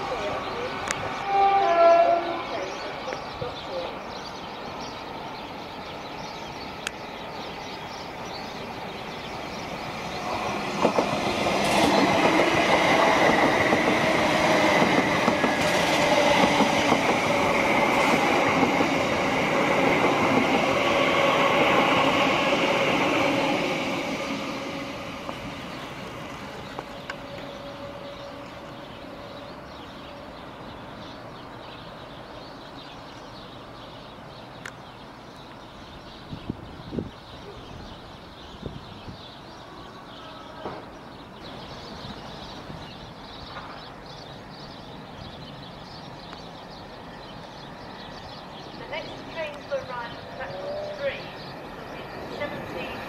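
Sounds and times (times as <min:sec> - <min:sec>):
train wheels rumbling: 0:00.0 - 0:33.7.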